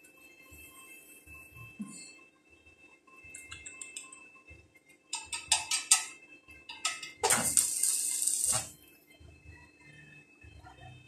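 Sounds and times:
welding arc crackling and hissing: 6.8s - 8.8s
sputtering arc strikes: 7.2s - 8.7s.

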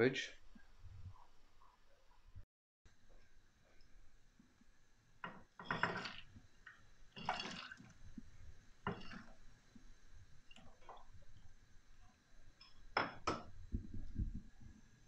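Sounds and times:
water splashing: 5.6s - 9.5s.

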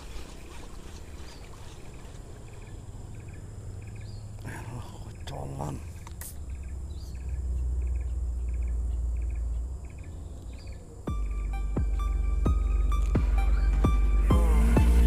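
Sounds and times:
insects chirping in pulsed bursts: 0.0s - 15.0s
music: 11.1s - 15.0s.

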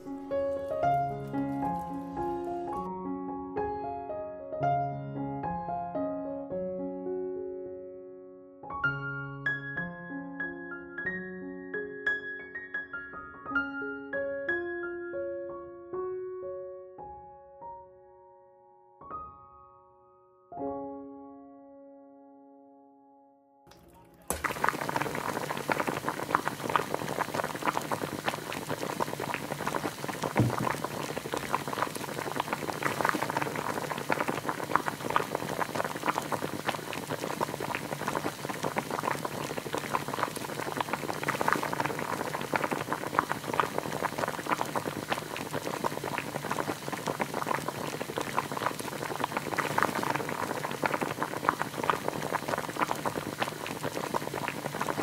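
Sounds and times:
soup boiling in a pot: 0.0s - 2.7s, 24.3s - 55.0s
soft thump: 30.4s - 30.8s.

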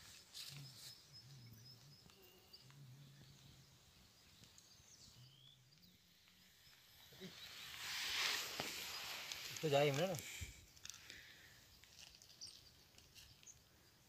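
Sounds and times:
faint high chirps: 0.0s - 10.2s.

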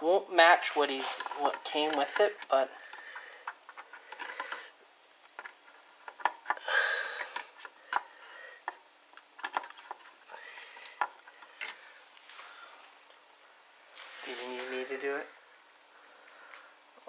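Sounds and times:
scraping rustle: 13.9s - 15.1s.

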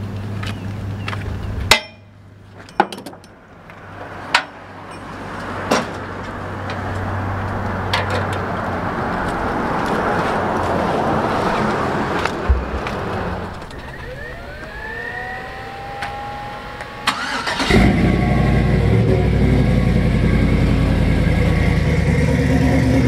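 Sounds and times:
steady rushing noise: 3.4s - 17.1s
engine idling hum: 12.2s - 23.0s.

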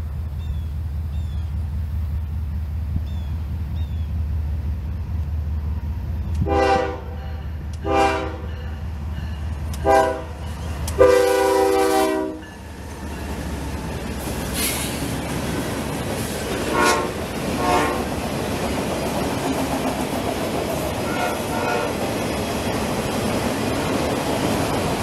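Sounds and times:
train rumbling past: 0.0s - 25.0s
train horn blasts: 6.4s - 12.6s, 16.6s - 18.2s, 21.0s - 22.0s.

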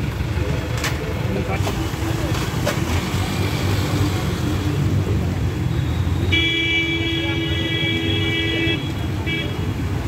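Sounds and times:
traffic rumble in flooded street: 0.0s - 10.0s
vehicle horn: 6.3s - 9.7s.

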